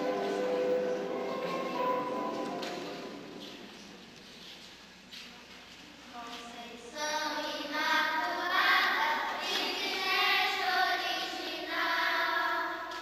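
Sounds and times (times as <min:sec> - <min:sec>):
girls singing a hymn: 0:06.8 - 0:13.0.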